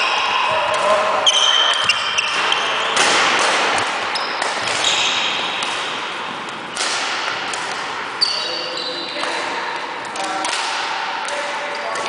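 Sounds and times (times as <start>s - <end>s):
shoes squeaking on floor: 0.0s - 3.2s, 4.1s - 5.6s, 8.2s - 9.3s
racket hitting shuttlecock: 0.0s - 8.3s, 9.1s - 12.0s.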